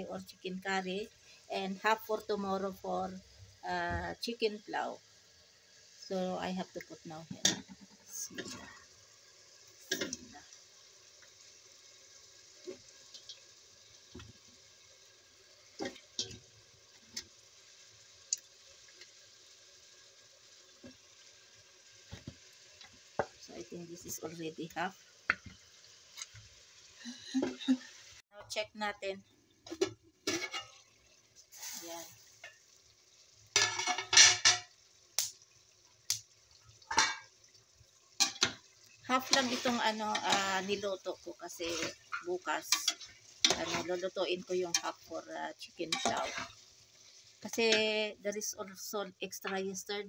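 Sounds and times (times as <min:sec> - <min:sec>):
metal spatula scraping a pot: 0:07.4 - 0:08.8, 0:29.8 - 0:30.9, 0:38.2 - 0:41.0, 0:41.6 - 0:45.1, 0:45.8 - 0:46.7
simmering hiss: 0:31.3 - 0:32.6
metal clattering against a pot: 0:33.6 - 0:34.7, 0:36.9 - 0:37.3, 0:38.2 - 0:38.6.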